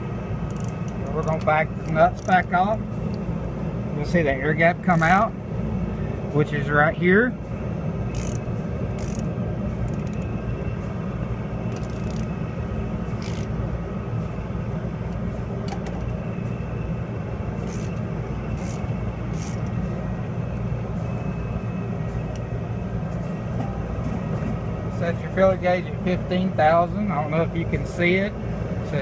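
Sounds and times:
low mechanical hum: 0.0s - 29.0s
wrench metallic clicks: 0.5s - 2.4s, 8.1s - 9.3s, 9.9s - 10.3s, 11.7s - 12.3s, 13.2s - 13.5s, 17.6s - 18.0s, 18.6s - 19.8s.

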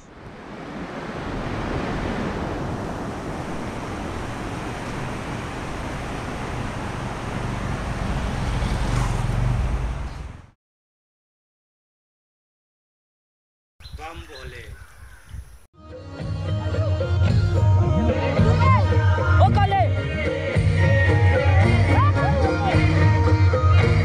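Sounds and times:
wind buffeting microphone: 0.1s - 10.4s, 13.8s - 15.7s.

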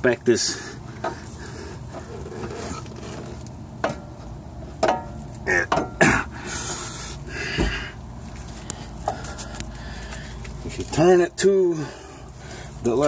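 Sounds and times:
person grunting and breathing: 5.4s - 8.0s.

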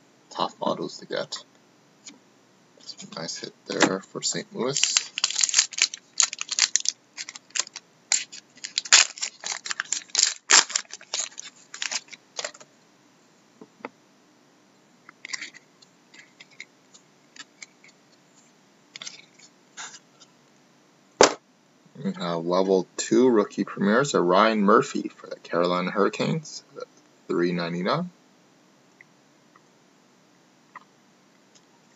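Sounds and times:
wrapper tearing and crinkling: 4.7s - 12.6s.

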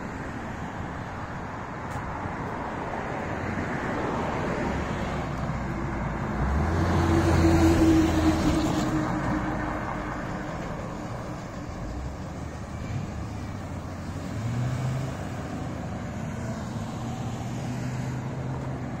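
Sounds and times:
vehicles passing: 0.0s - 19.0s.

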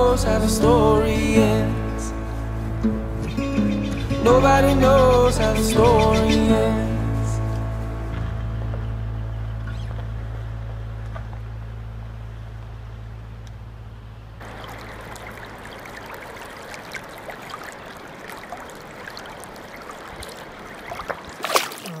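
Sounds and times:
truck engine humming: 0.0s - 21.4s
river water rushing and splashing: 14.4s - 22.0s
loud splash or knock: 21.0s - 22.0s.

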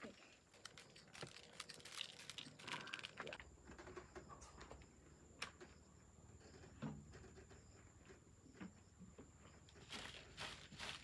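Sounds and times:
small clicks and rustles: 0.0s - 5.8s.

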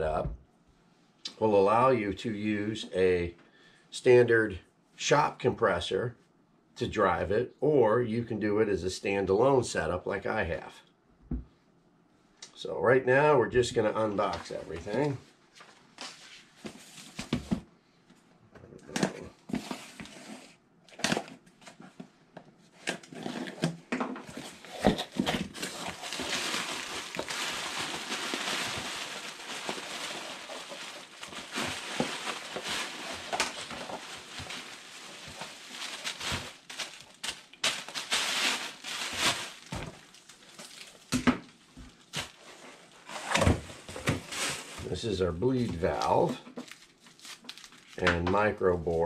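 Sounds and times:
bubble wrap crinkling: 24.3s - 48.9s.

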